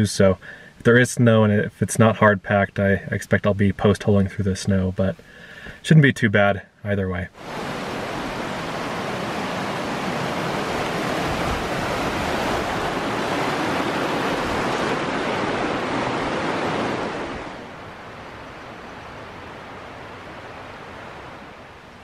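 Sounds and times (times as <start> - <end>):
creek rushing over rocks: 7.4 - 21.6.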